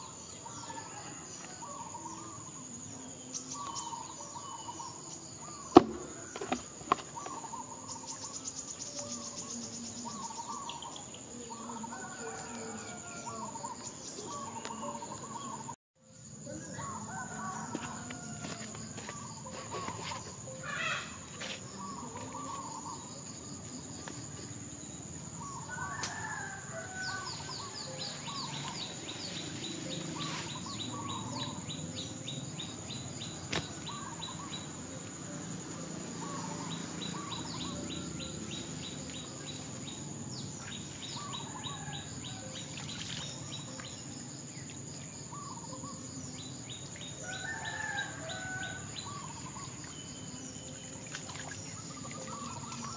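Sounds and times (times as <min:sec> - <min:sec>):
birds warbling: 0:03.3 - 0:15.8, 0:16.6 - 0:23.6, 0:25.3 - 0:35.1, 0:45.1 - 0:52.9.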